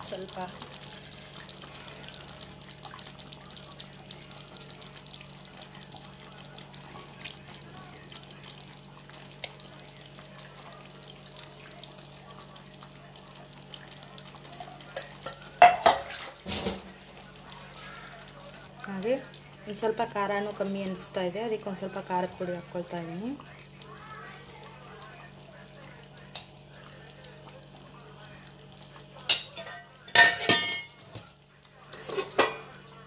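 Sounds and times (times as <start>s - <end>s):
curry bubbling in a pot: 0.0s - 33.0s
utensils knocking against pot: 14.9s - 16.7s.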